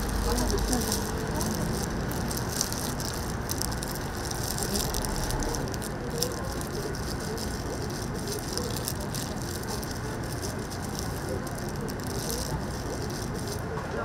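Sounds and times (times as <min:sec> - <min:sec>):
griddle sizzling: 0:00.0 - 0:13.8
utensils clattering and clicking: 0:00.0 - 0:13.8.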